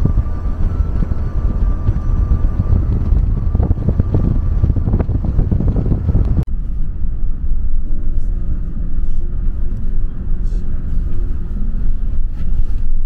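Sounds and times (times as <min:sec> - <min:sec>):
wind buffeting microphone: 0:00.0 - 0:08.1
vehicle rumble: 0:00.0 - 0:13.0.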